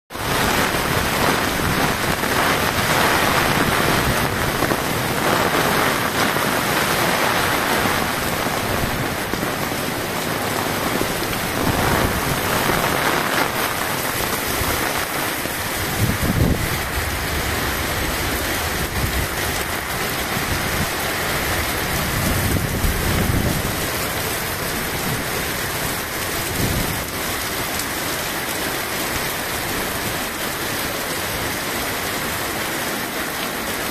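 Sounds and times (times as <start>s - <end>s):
heavy rain on pavement: 0.1s - 33.9s
low rumbles: 0.4s - 25.1s.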